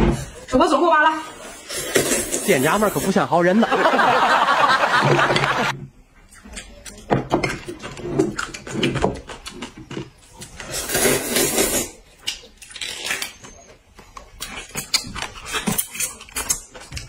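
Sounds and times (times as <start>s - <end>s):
noodles slurped: 1.6s - 3.0s
chewing with small clicks: 6.2s - 7.0s.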